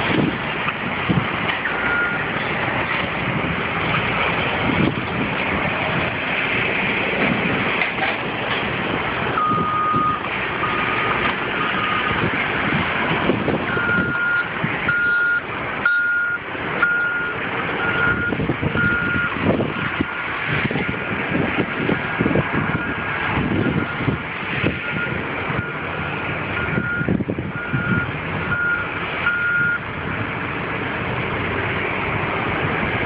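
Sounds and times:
diesel engines rumbling: 0.0s - 33.0s
reversing alarm beeps: 1.7s - 2.2s, 9.4s - 12.2s, 13.7s - 19.4s, 24.8s - 25.9s, 26.6s - 29.8s
higher-pitched alarm beeping: 9.4s - 12.2s, 13.7s - 19.3s.

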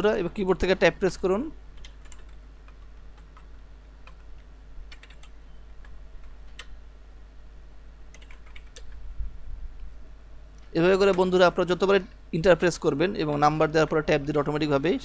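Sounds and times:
faint low hum: 0.0s - 15.0s
keyboard keystrokes: 4.9s - 6.8s, 8.1s - 9.0s.

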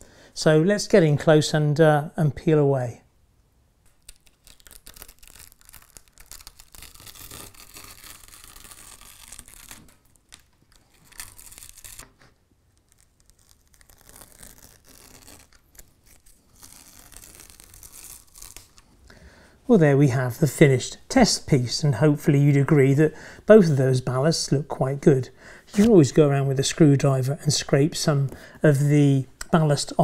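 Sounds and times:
tape peeling with crackling tear: 3.8s - 18.9s, 25.7s - 26.0s.

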